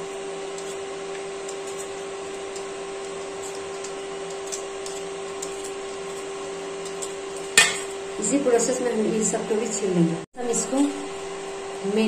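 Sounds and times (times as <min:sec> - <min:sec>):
vegetable peeler scraping potato: 0:00.0 - 0:07.8
steady hum: 0:00.0 - 0:12.0.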